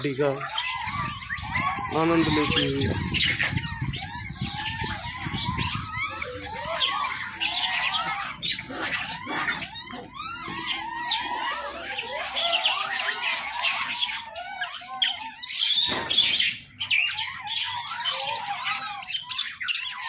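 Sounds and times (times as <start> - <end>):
monkeys squealing and chirping: 0.0 - 20.0.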